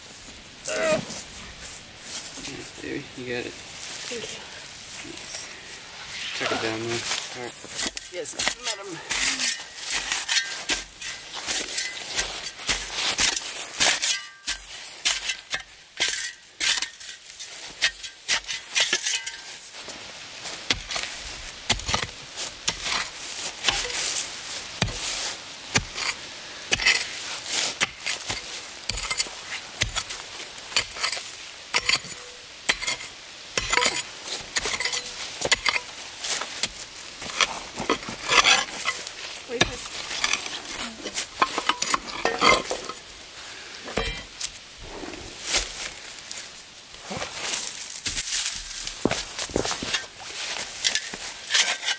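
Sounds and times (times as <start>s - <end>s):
shovel digging soil: 6.0s - 19.7s, 20.6s - 43.1s, 43.9s - 51.9s
tool clinking on rock: 13.9s - 17.0s, 18.8s - 19.5s, 30.8s - 33.0s, 33.6s - 35.9s, 41.2s - 43.0s.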